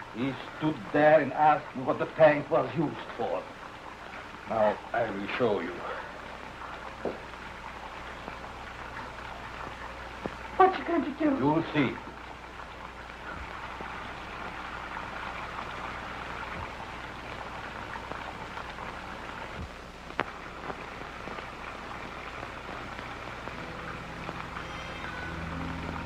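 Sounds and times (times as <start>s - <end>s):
steady rain-like hiss: 0.0s - 26.0s
low held tones: 23.4s - 26.0s.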